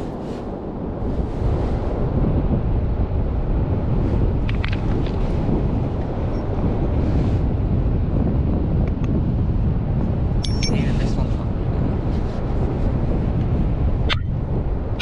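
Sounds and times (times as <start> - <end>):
wind buffeting microphone: 0.0 - 15.0
stones clicking: 4.4 - 5.2.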